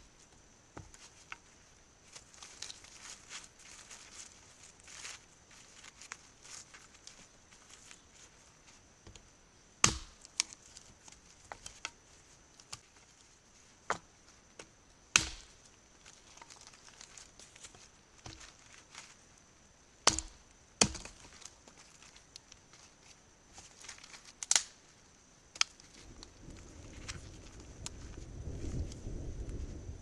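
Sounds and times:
axe chopping log: 0:09.8 - 0:10.2, 0:15.1 - 0:15.6, 0:20.0 - 0:21.2.

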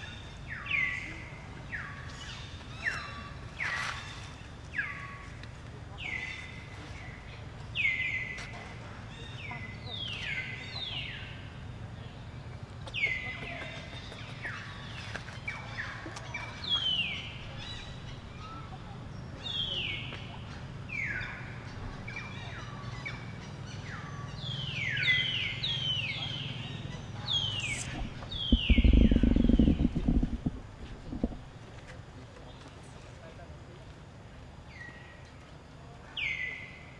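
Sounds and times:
steady low hum: 0:16.8 - 0:33.0
birds whistling: 0:23.7 - 0:31.5
loud low rumble: 0:27.4 - 0:31.6.

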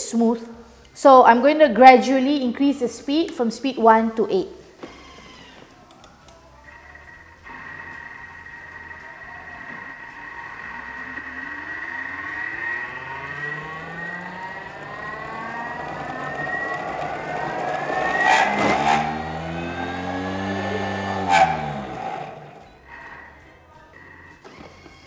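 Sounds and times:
blender motor whine: 0:04.8 - 0:05.7, 0:06.6 - 0:23.4
sharp clicks: 0:04.9 - 0:06.4.

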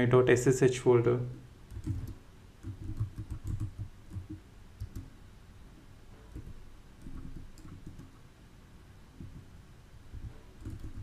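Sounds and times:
computer keyboard keystrokes: 0:01.7 - 0:05.1, 0:06.3 - 0:08.2, 0:10.2 - 0:11.0.

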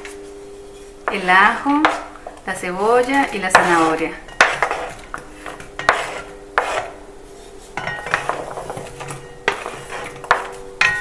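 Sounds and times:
wooden spoon scraping cutting board: 0:00.8 - 0:02.1, 0:03.5 - 0:10.6.

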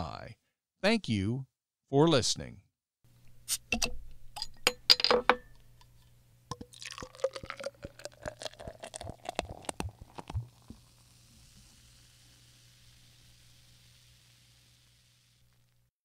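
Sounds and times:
drink pouring into a glass: 0:06.5 - 0:15.6.

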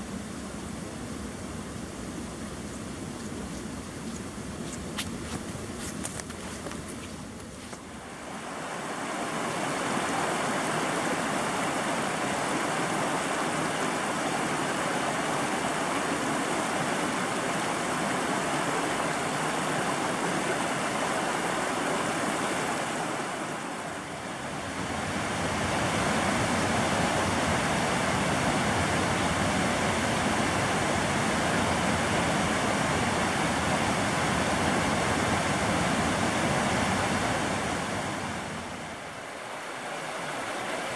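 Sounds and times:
creek water over cascades: 0:00.0 - 0:40.9.

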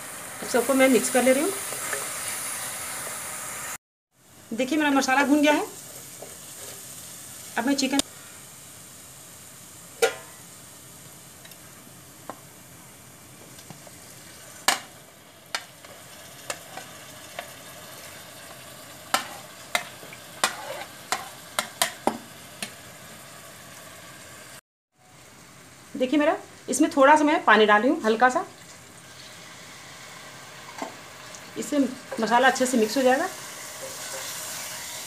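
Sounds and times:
masala sizzling in a pan: 0:00.0 - 0:35.0
spoon and spatula clacking on pan: 0:10.0 - 0:10.4, 0:19.1 - 0:22.7.

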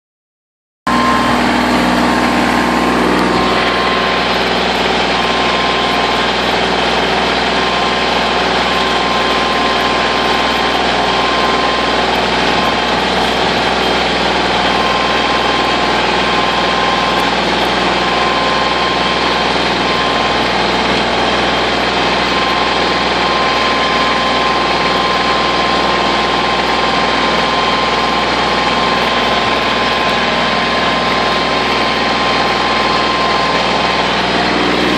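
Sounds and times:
tractor diesel engine under load: 0:00.9 - 0:34.9.

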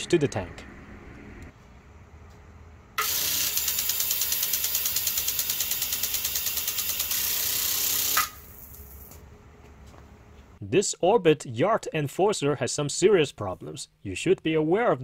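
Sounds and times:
sprinkler spray hissing: 0:03.0 - 0:09.0.

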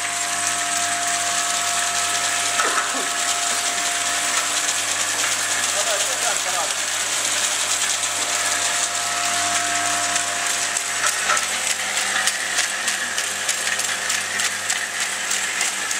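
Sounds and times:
machine humming and clattering: 0:00.0 - 0:15.9
rapid machine clicking: 0:10.6 - 0:15.9.

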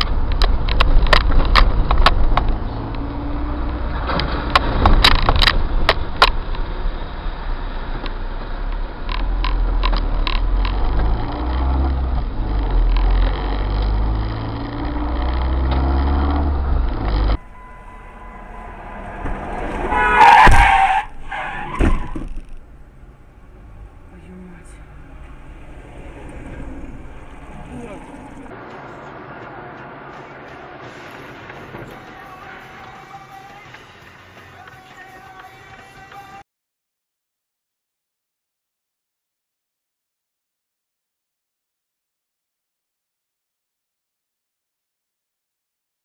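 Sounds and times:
sharp knocks and clicks: 0:00.0 - 0:03.1, 0:04.1 - 0:06.7, 0:09.0 - 0:11.0
car road noise rumble: 0:00.0 - 0:36.4
tyre screech: 0:17.0 - 0:22.6.

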